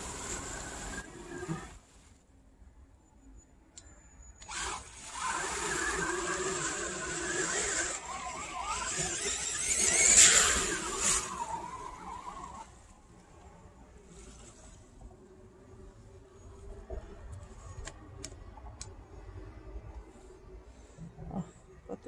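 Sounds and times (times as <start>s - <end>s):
water and mud spraying: 0.0s - 1.8s
electric motor whine: 4.4s - 13.2s.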